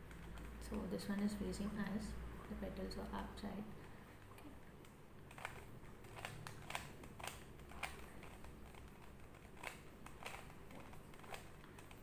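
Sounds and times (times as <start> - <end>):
puzzle cube clicking: 4.8 - 12.0.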